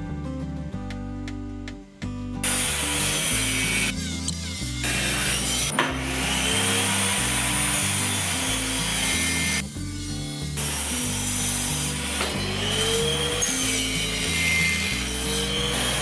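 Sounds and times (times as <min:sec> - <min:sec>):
background music with bass line: 0:00.0 - 0:16.0
table saw cutting wood: 0:02.4 - 0:16.0.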